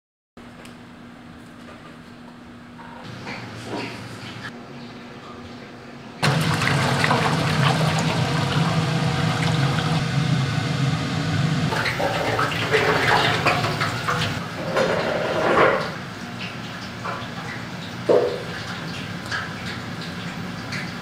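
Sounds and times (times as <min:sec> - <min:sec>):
oil pouring into metal tank: 0:06.2 - 0:10.0.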